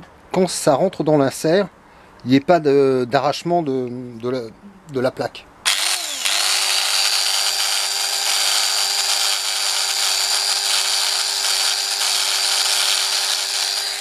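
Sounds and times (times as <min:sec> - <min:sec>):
angle grinder whining: 0:05.7 - 0:14.0.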